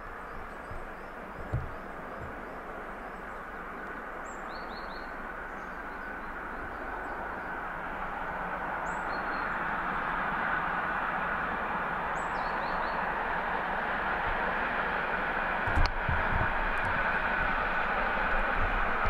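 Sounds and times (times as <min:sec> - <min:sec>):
birds chirping: 0:00.0 - 0:07.6
distant steam train rumble: 0:00.0 - 0:19.0
low thumps: 0:00.6 - 0:02.7.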